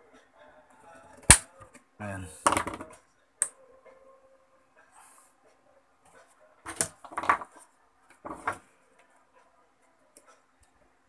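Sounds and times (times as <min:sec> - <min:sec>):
tools knocking and clattering: 0:02.4 - 0:03.0.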